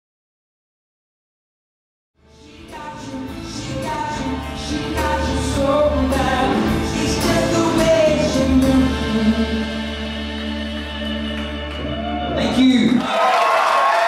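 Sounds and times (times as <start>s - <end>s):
pop band playing with singing: 2.3s - 12.9s.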